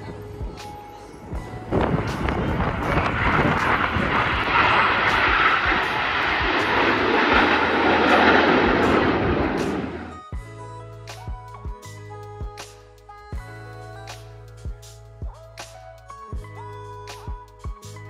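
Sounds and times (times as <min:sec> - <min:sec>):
jets passing overhead: 0:01.2 - 0:10.3.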